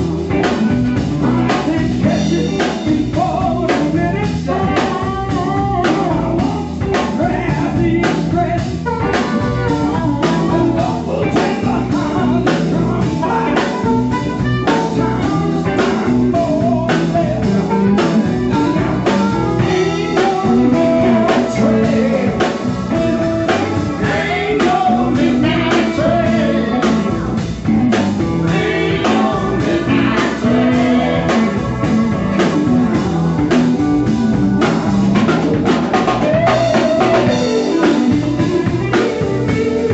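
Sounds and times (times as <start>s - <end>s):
man singing: 0.0s - 33.5s, 35.6s - 39.9s
drum kit beat: 0.0s - 39.9s
electric guitar: 0.0s - 39.9s
keyboard: 0.0s - 39.9s
harmonica: 8.8s - 35.0s, 36.3s - 39.9s.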